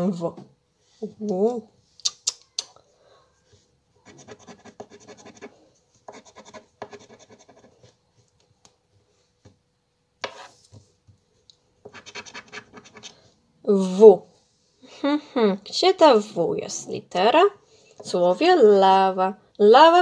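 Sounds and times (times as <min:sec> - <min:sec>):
scratch card scraping: 0:10.2 - 0:10.7, 0:11.9 - 0:13.2.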